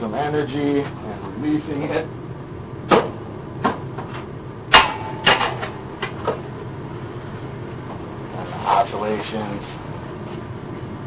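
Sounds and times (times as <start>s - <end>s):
metal ringing tone: 4.7s - 5.9s.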